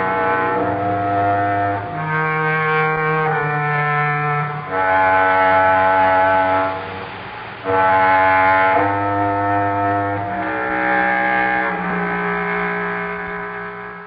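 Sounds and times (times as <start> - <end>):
low bass note: 0.0 - 14.0
slow held chords: 0.0 - 14.0.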